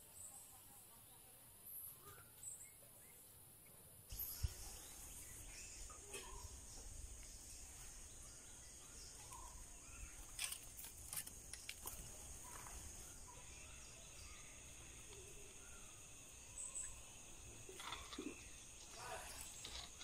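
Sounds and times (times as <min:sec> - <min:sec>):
faint bird calls: 0:01.8 - 0:10.5.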